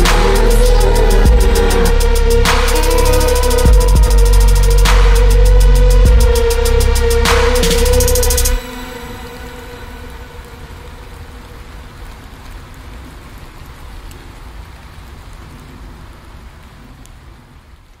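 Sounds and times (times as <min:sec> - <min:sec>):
low rumble: 0:00.0 - 0:11.6
steady hiss: 0:00.0 - 0:12.6.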